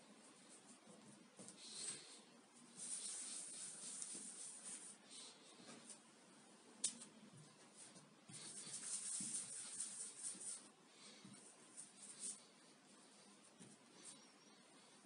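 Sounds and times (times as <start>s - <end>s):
palms rolling dough: 6.8s - 15.0s.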